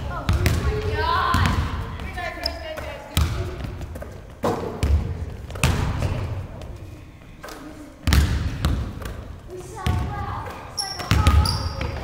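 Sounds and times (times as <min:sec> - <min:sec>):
basketball bouncing on wood floor: 0:00.2 - 0:06.3, 0:08.0 - 0:09.2, 0:11.0 - 0:12.0.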